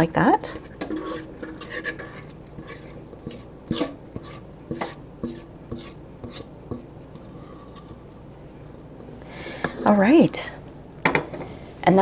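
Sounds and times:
spatula scraping metal bowl: 0:00.4 - 0:08.1.

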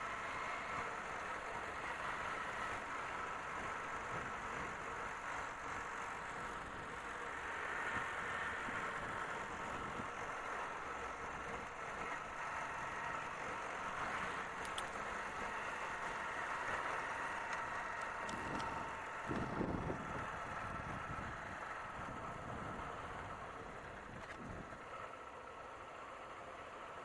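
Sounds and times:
wind and road hiss: 0:00.0 - 0:27.0
motorcycle engine running: 0:03.7 - 0:24.8
faint clicks: 0:14.6 - 0:15.0.

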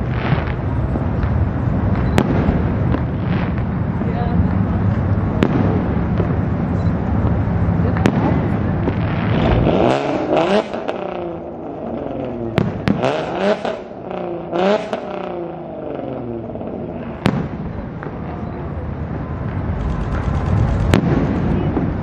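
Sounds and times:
fireworks bangs: 0:00.0 - 0:22.0
vehicle engine revving: 0:04.5 - 0:17.3, 0:19.6 - 0:22.0.

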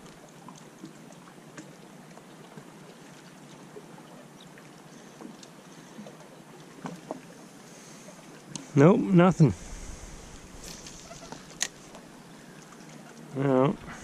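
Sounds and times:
water lapping on rocky shore: 0:00.0 - 0:14.0.

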